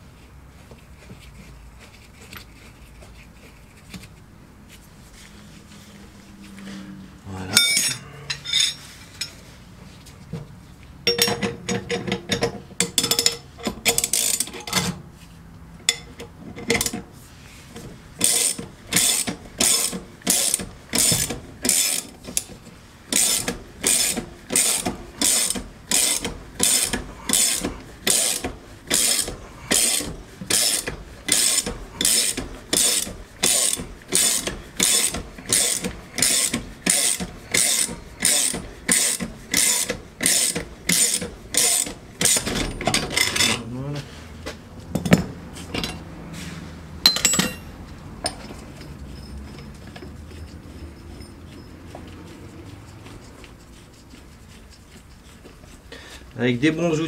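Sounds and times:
ratchet wrench clicking: 12.3 - 14.6, 18.2 - 22.5, 23.1 - 42.5.

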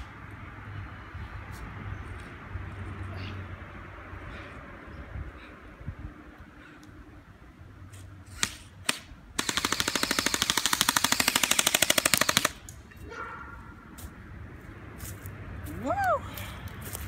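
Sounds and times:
toy rifle firing: 8.4 - 12.7.

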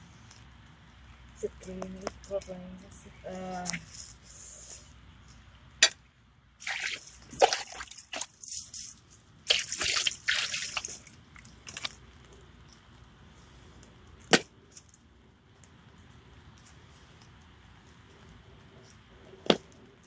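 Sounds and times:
water pouring into plastic bowl: 6.6 - 12.0.

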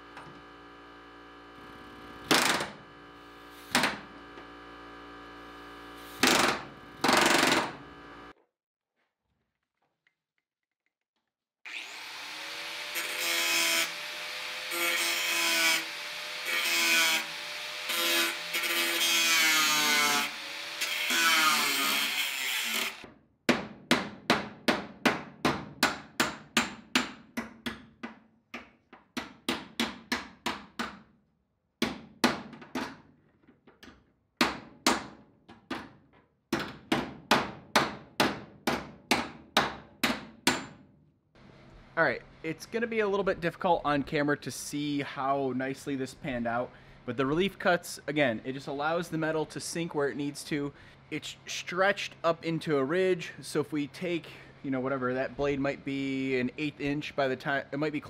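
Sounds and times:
cutoff wheel cutting steel: 11.7 - 23.1
hammer beating sheet metal: 23.5 - 27.8.

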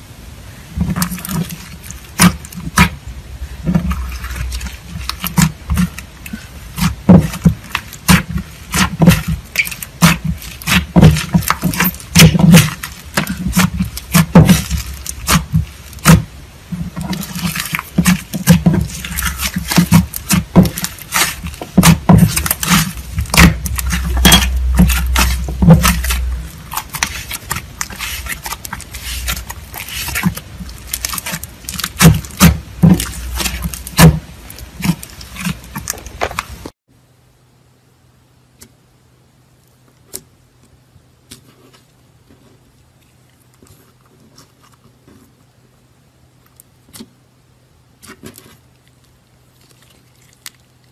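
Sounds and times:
slime squishing with clicks and pops: 1.9 - 3.0, 5.0 - 16.3.

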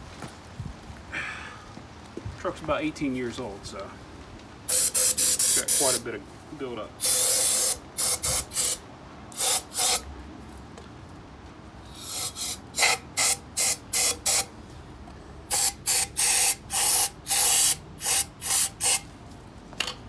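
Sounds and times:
aerosol spray bursts: 4.7 - 6.0, 7.0 - 10.0, 11.9 - 14.5, 15.5 - 19.0.

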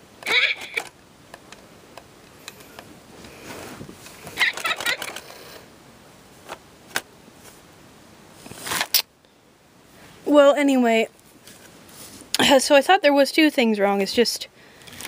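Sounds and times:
toy handling clicks and knocks: 0.2 - 2.9, 4.0 - 5.4, 14.8 - 15.0.

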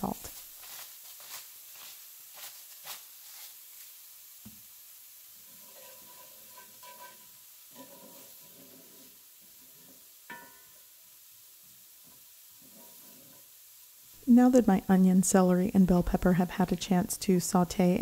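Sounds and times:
wooden spoon scraping a pan: 0.0 - 4.0, 5.4 - 10.9, 12.0 - 13.6
vegetables sizzling in a skillet: 0.0 - 18.0
spoon clinking against pan: 10.3 - 10.7.

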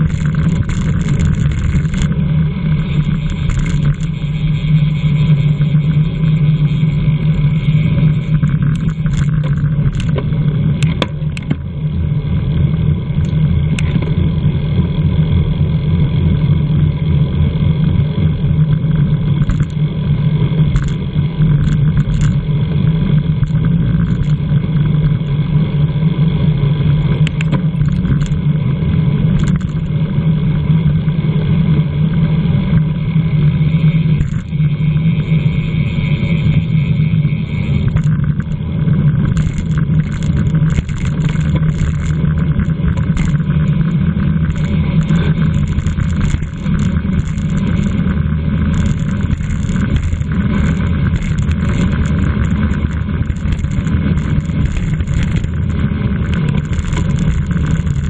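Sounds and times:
wind and road noise: 0.0 - 16.3, 18.1 - 58.0
faint clicks: 3.0 - 4.2, 21.6 - 22.4, 27.0 - 28.4, 39.3 - 43.8, 44.5 - 58.0.

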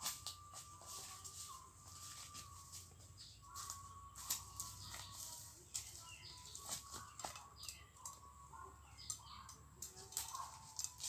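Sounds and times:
footsteps crunching through leaves: 0.0 - 7.6.

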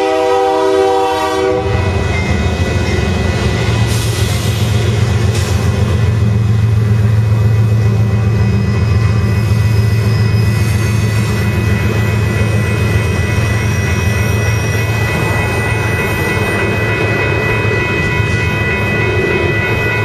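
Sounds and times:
train wheels rumbling on rail: 0.0 - 20.0
high-pitched ringing tones: 6.8 - 20.0.

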